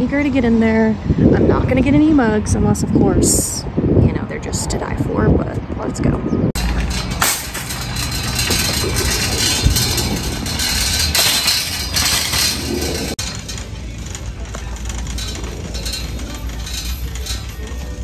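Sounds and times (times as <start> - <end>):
indoor noise: 6.5 - 18.0
shopping cart rattling over pavement: 6.6 - 18.0.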